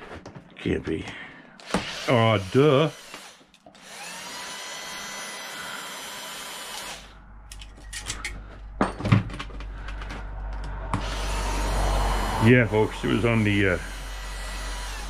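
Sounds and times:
cordless drill motor whirring: 1.6s - 7.2s, 10.9s - 15.0s
metal parts clicking and knocking: 7.5s - 10.8s.

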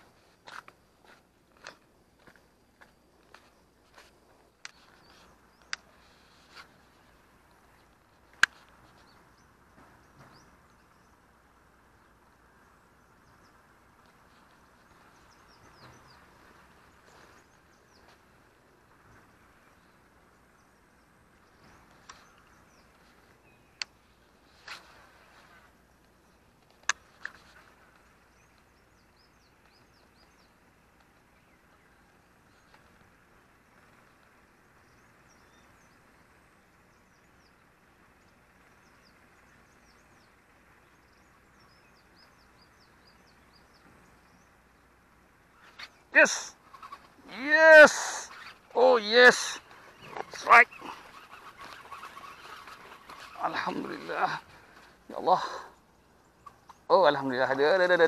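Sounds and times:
faint outdoor background noise: 0.0s - 58.0s
faint bird chirps: 12.0s - 58.0s
sharp clicks: 26.0s - 27.4s.

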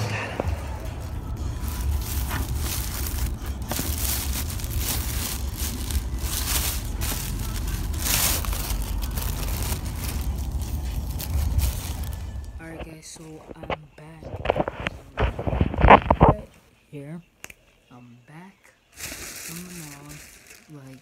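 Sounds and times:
steady low rumble: 0.0s - 15.8s
plastic bag rustling: 0.0s - 16.5s, 19.0s - 21.0s.

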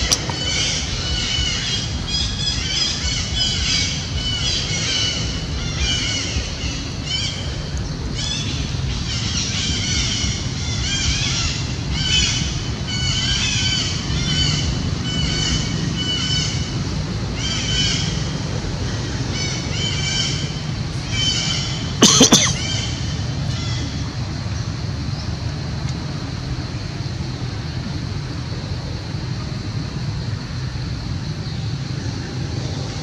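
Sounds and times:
low rumble: 0.0s - 22.0s.

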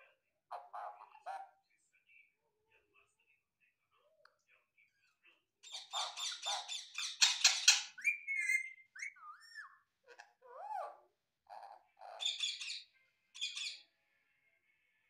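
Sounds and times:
parakeet calling: 5.6s - 13.8s.

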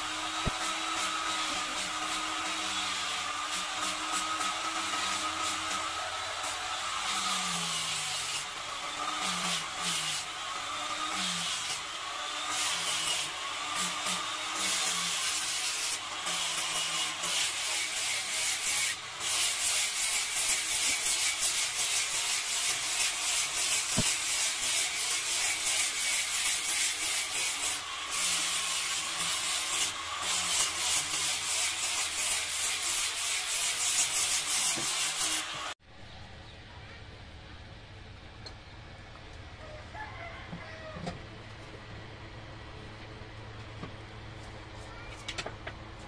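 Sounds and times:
angle grinder sanding wood: 0.0s - 35.8s.

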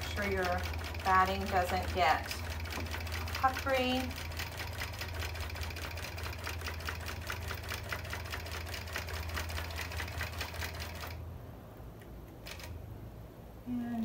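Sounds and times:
sewing needle ticking: 0.0s - 11.1s
machine motor hum: 0.0s - 11.2s.

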